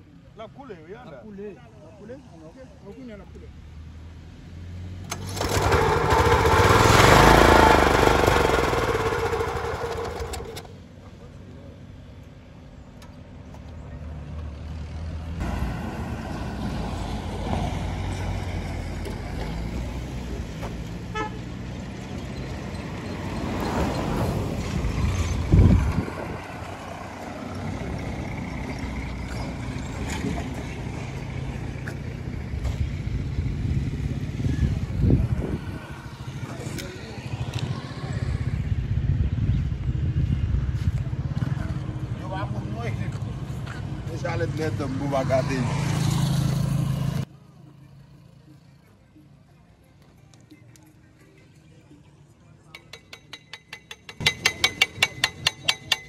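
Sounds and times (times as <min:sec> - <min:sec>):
steady traffic noise: 0:00.0 - 0:56.0
vehicle passing: 0:13.3 - 0:49.2
vehicle horn: 0:21.0 - 0:21.6.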